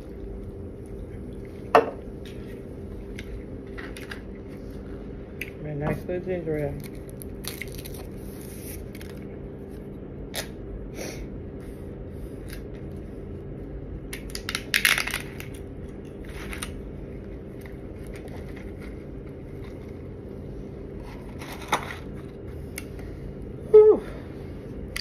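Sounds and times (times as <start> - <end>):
steady low hum: 0.0 - 25.0
paper wrapper crinkling and tearing: 6.7 - 9.8.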